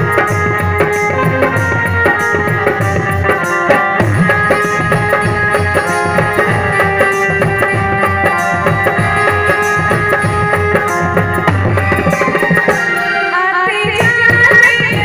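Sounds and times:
hand drum beat: 0.0s - 15.0s
held melody notes: 0.0s - 15.0s.

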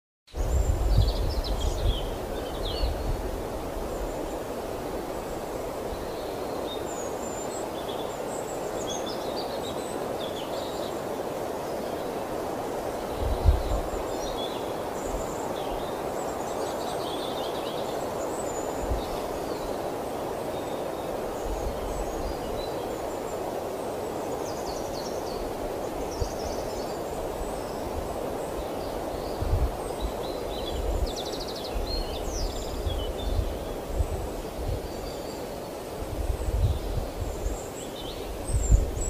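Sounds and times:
birds chirping and trilling: 0.3s - 11.1s, 24.2s - 34.2s
rushing outdoor noise: 0.3s - 39.0s.

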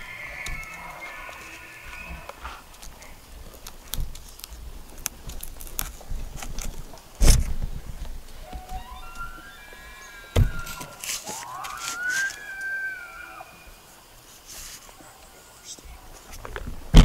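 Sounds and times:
elk bugling: 0.0s - 3.2s, 8.4s - 14.2s
footsteps crunching through twigs: 9.0s - 13.4s.

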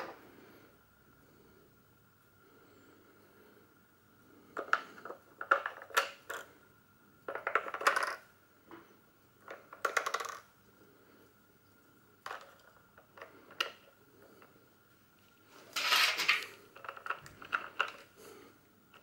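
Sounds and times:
batteries clinking and rattling: 15.7s - 18.2s.

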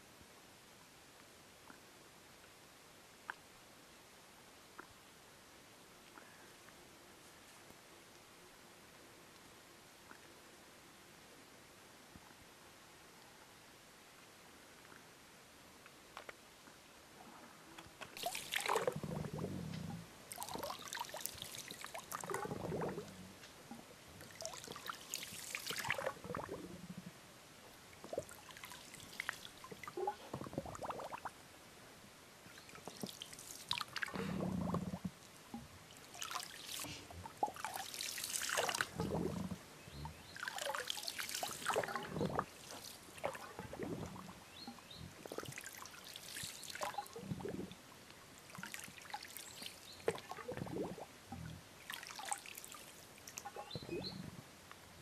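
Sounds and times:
water trickling and splashing: 18.1s - 31.4s, 32.4s - 54.4s.

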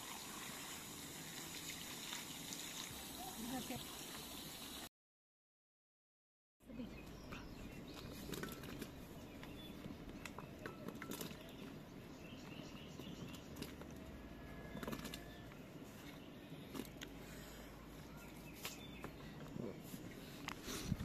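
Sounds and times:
birds chirping: 6.6s - 20.8s.

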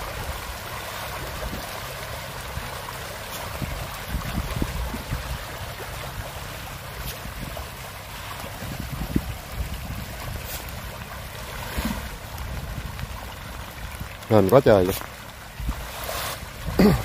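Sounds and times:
fish splashing at water surface: 0.0s - 17.0s
wind buffeting microphone: 3.5s - 6.3s, 8.4s - 14.8s, 15.5s - 17.0s.

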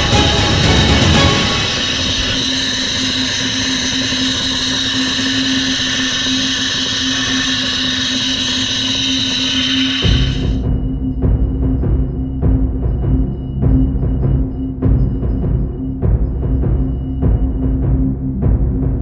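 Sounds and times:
steady hum: 0.0s - 19.0s
abrasive blaster hissing on metal: 1.3s - 10.6s.

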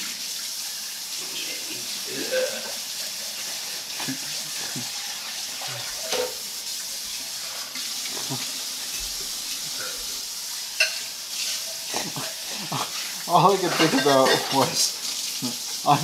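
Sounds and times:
food sizzling in frying pan: 0.0s - 16.0s
utensil clinking: 12.0s - 14.9s.

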